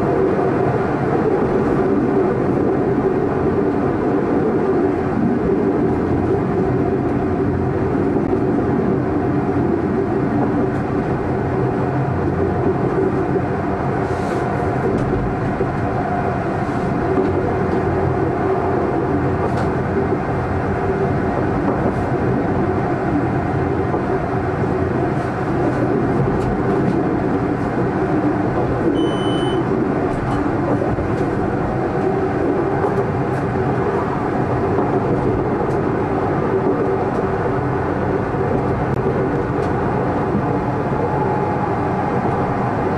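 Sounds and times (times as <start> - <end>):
tram wheels rumbling on rails: 0.0 - 42.9
brief high tone: 29.0 - 29.6.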